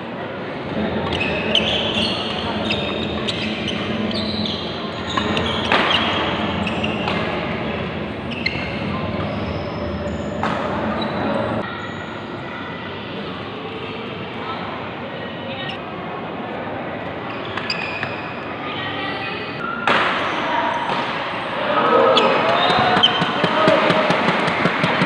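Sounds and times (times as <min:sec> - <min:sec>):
shoe squeaks on court: 0:01.0 - 0:07.4, 0:08.2 - 0:12.1, 0:17.3 - 0:18.3, 0:22.2 - 0:23.5
racket striking shuttlecock: 0:06.9 - 0:07.6.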